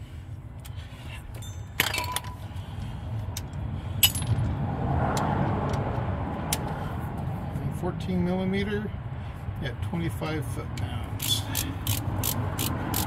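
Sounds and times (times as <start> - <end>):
ratchet clicks: 11.2 - 13.0.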